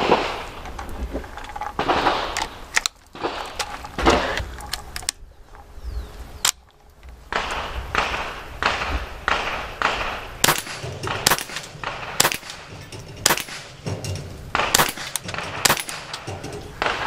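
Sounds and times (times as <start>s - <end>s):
rifle shots cracking: 0.0s - 0.7s, 1.8s - 4.4s, 7.3s - 17.0s.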